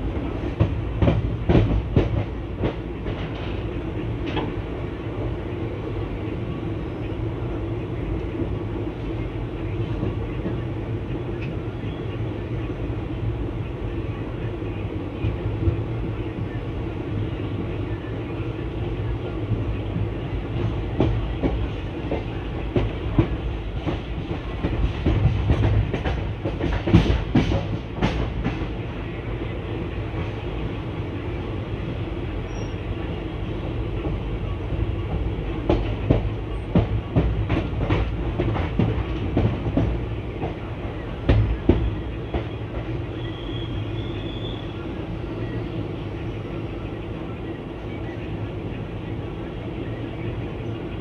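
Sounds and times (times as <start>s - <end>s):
train wheels rumbling: 0.0s - 51.0s.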